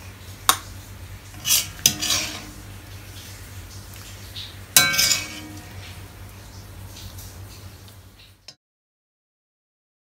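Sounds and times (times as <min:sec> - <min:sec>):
metal spoon scraping a wok: 0:01.3 - 0:02.9, 0:04.8 - 0:06.2
spoon clinking on bowl: 0:04.8 - 0:05.9.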